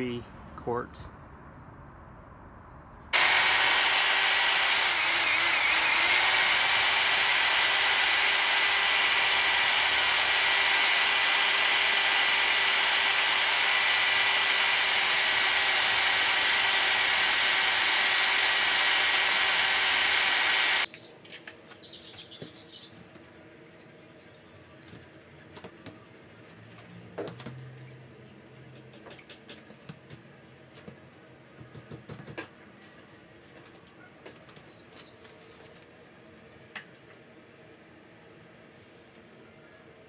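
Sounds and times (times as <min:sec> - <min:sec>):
electric drill mixer running: 0:03.2 - 0:20.9.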